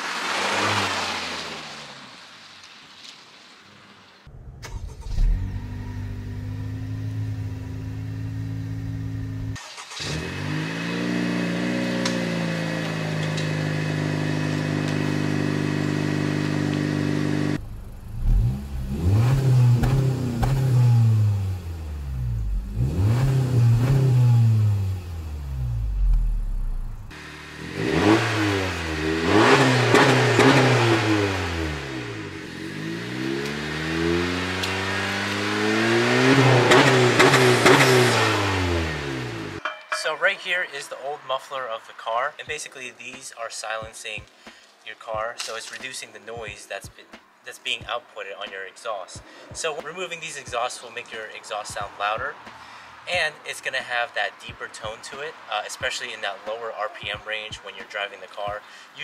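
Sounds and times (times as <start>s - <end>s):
car engine idling: 4.2s - 39.6s
car engine revving: 4.3s - 39.6s.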